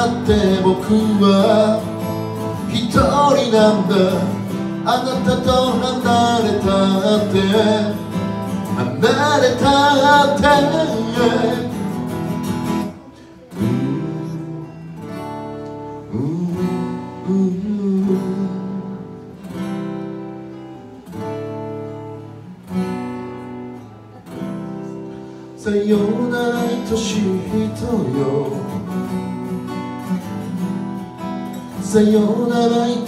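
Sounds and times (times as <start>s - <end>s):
man singing with vibrato: 0.0s - 19.5s, 24.8s - 29.6s, 31.5s - 33.0s
acoustic guitar strumming chords: 0.0s - 33.0s.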